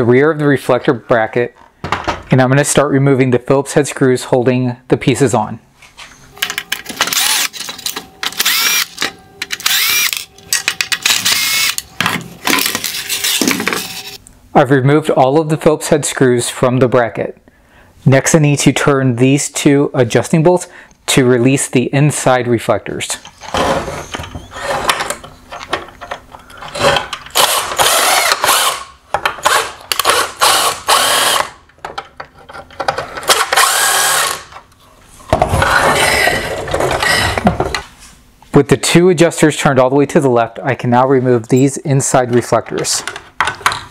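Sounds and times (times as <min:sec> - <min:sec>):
cordless drill motor whine: 0:07.1 - 0:07.5, 0:08.2 - 0:09.0, 0:09.6 - 0:10.3, 0:11.1 - 0:11.8, 0:27.4 - 0:28.8, 0:30.1 - 0:31.5, 0:33.5 - 0:34.4
cordless driver motor whine: 0:08.2 - 0:10.4, 0:11.0 - 0:11.8, 0:33.5 - 0:34.4
handling clicks and knocks: 0:42.3 - 0:43.9.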